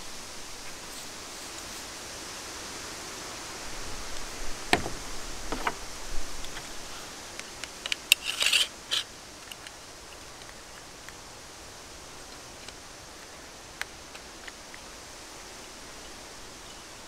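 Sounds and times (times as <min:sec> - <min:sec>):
blade clamp clicks and rattles: 0:07.6 - 0:09.8
metal scraping: 0:08.1 - 0:09.1.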